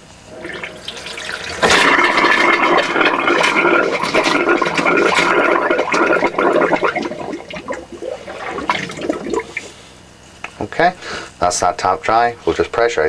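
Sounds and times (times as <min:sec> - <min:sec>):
air and water rushing from tap: 0:00.0 - 0:09.8.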